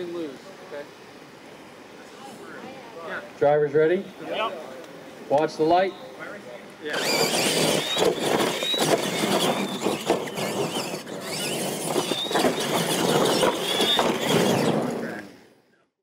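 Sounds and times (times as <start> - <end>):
tyres on dirt: 6.9 - 15.4
rc truck motors whining: 6.9 - 15.5.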